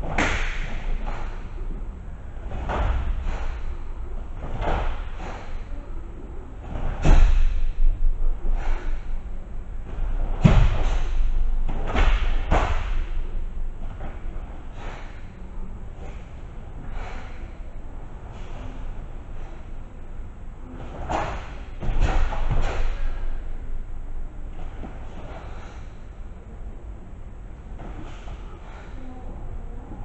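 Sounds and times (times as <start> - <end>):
bare feet thudding on mats: 2.4 - 3.8, 4.4 - 5.7, 6.6 - 9.1, 9.9 - 15.3.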